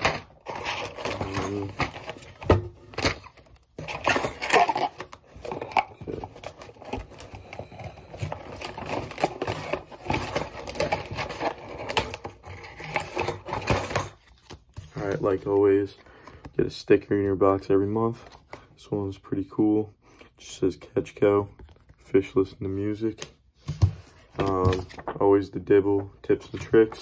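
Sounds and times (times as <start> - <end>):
rummaging through cardboard box: 0.0 - 16.0.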